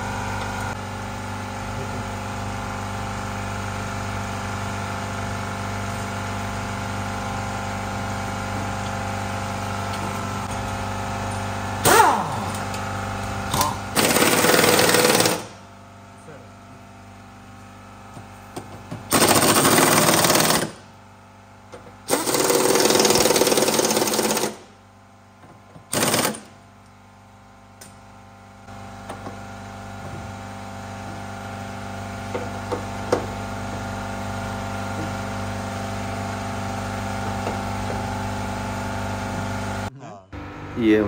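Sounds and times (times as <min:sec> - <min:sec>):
air impact wrench hammering: 0:11.8 - 0:12.8, 0:13.5 - 0:15.6, 0:18.6 - 0:20.9, 0:22.0 - 0:24.8, 0:25.9 - 0:26.6
steady hum: 0:39.4 - 0:41.0.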